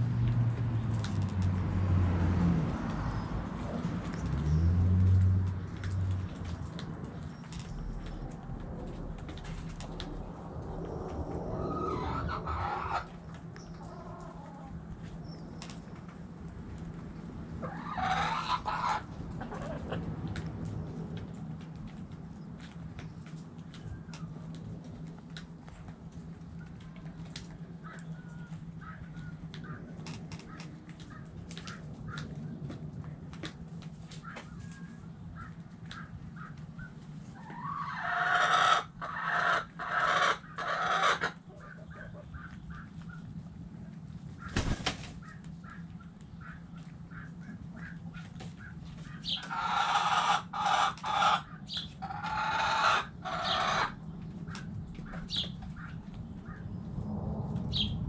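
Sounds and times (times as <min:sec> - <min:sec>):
chickens squawking: 0:11.4 - 0:15.8, 0:17.5 - 0:20.4, 0:26.6 - 0:32.4, 0:34.1 - 0:43.3, 0:44.3 - 0:56.8.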